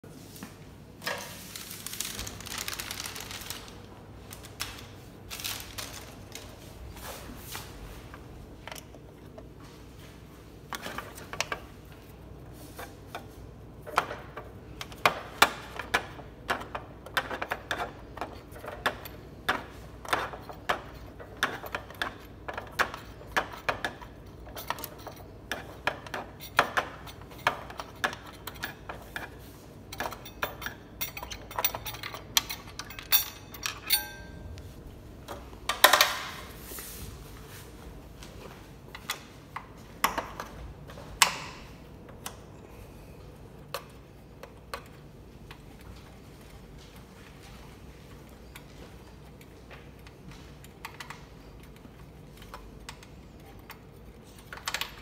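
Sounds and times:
scrape: 0:36.5 - 0:37.7.

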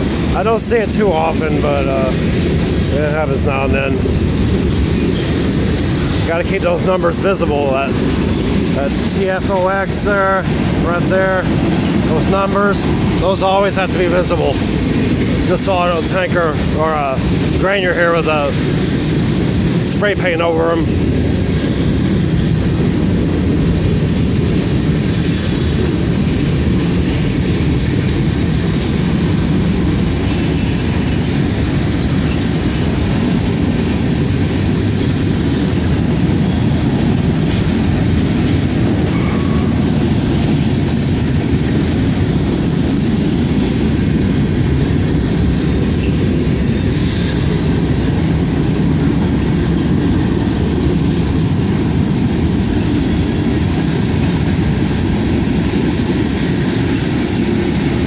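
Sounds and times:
freight train wheels rolling on rails: 0:00.0 - 0:58.0.

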